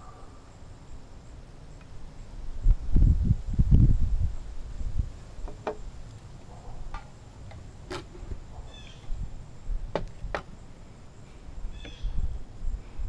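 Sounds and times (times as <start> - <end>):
bird chirp: 8.6 - 9.2, 11.7 - 12.4.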